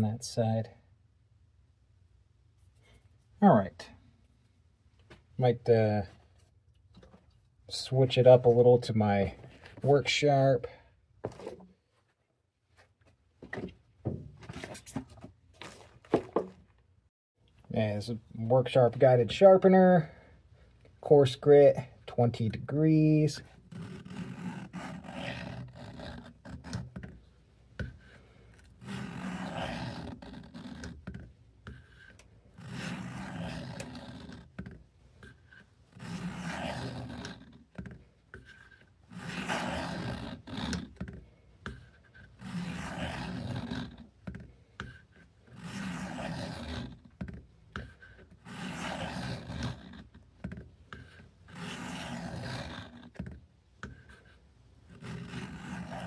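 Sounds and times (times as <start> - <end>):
knife scraping on abrasive: 23.7 - 26.9, 28.7 - 31.0, 31.6 - 34.5, 35.2 - 37.6, 38.4 - 40.9, 42.2 - 44.0, 45.5 - 47.0, 47.8 - 50.1, 50.9 - 53.2, 54.0 - 56.0.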